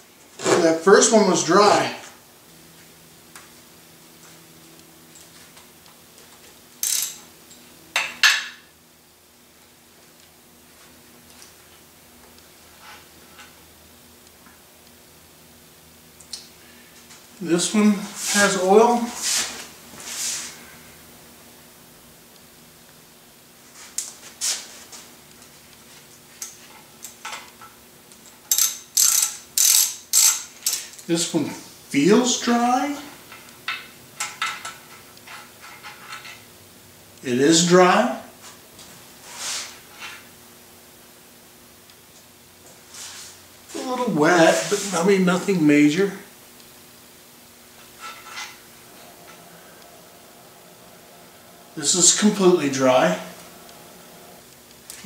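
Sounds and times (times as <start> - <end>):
socket ratchet clicking: 28.5 - 30.4.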